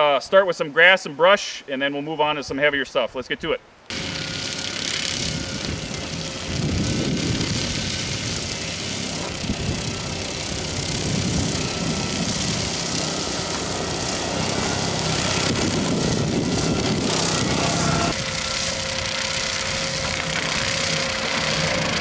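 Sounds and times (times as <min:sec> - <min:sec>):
diesel engine under load: 0:03.9 - 0:22.0
mower blades cutting brush: 0:03.9 - 0:22.0.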